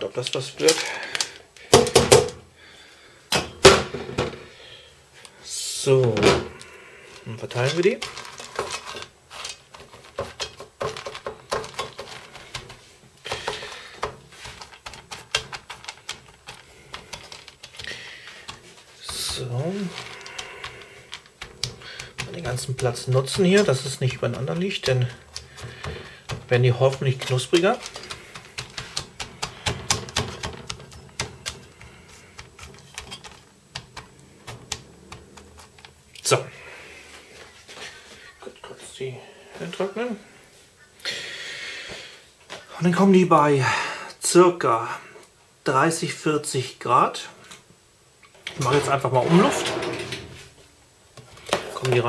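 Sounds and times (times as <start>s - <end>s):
seeds clicking on metal tray: 7.5s - 36.0s.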